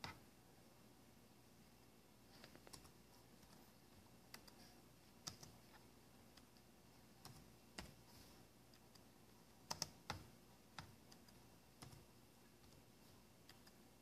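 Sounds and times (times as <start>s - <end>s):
faint mouse and keyboard clicks: 2.3s - 8.1s, 8.7s - 13.8s.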